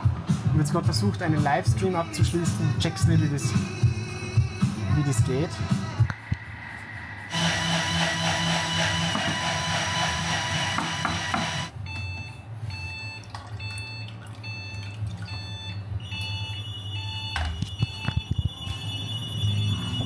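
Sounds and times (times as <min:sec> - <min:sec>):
food processor blade whirring: 0:07.3 - 0:11.7.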